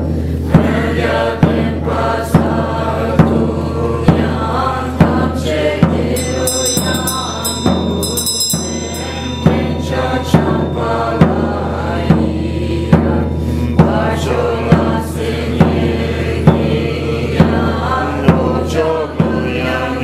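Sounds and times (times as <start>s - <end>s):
monks chanting in low voices: 0.0s - 20.0s
frame drum beating: 2.4s - 18.6s
hand bell ringing: 6.2s - 12.5s.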